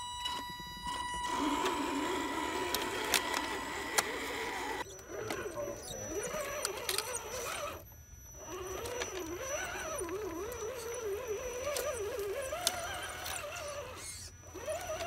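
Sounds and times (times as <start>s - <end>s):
electric motor whining: 0.0s - 15.0s
tyres and grit clicking: 0.3s - 15.0s.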